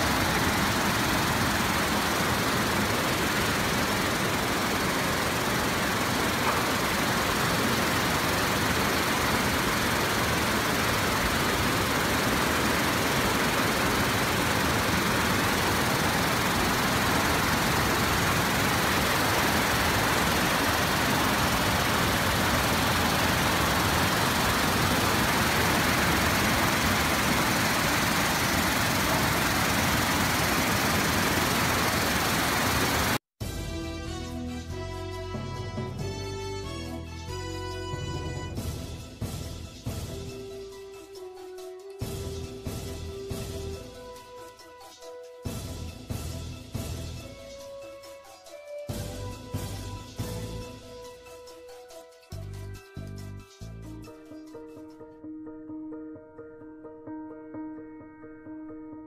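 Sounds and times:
floodwater rushing: 0:00.0 - 0:33.2.

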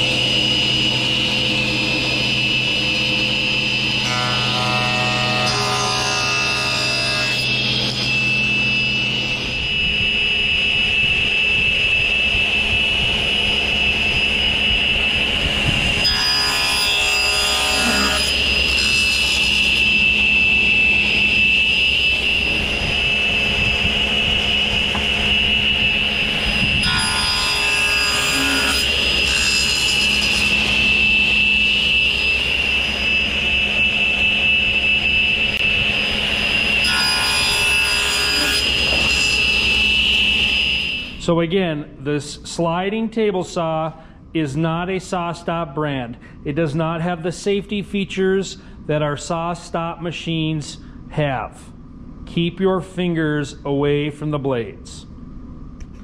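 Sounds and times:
saw rasping through plywood: 0:00.0 - 0:11.6, 0:13.4 - 0:41.2
table saw whining: 0:00.0 - 0:41.4.

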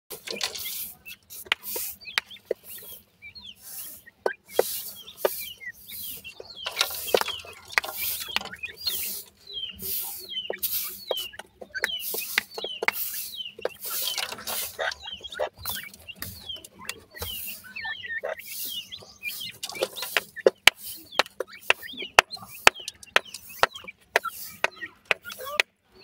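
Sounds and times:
chicks scratching in dry soil: 0:00.1 - 0:26.0
high chirping calls: 0:00.1 - 0:26.0
sharp pecking taps: 0:01.4 - 0:02.9, 0:06.2 - 0:09.3, 0:10.4 - 0:18.4, 0:19.0 - 0:25.7.

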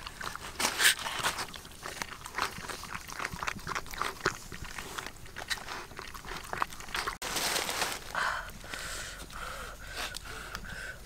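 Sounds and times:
puppy chewing crunchily: 0:00.0 - 0:07.3.

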